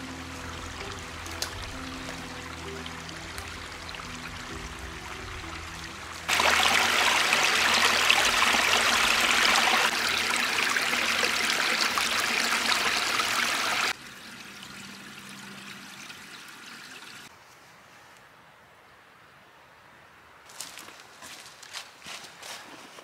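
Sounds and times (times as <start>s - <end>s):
loud rushing water: 0.0s - 14.0s
stream running over stones: 0.0s - 17.3s.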